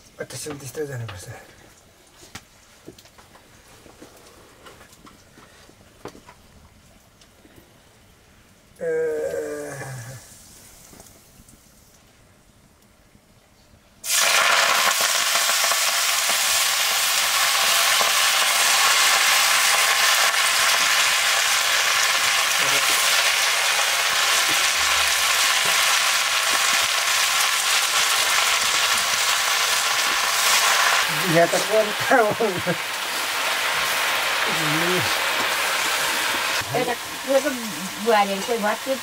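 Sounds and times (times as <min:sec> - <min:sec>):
greens sizzling in hot oil: 0:14.0 - 0:39.0.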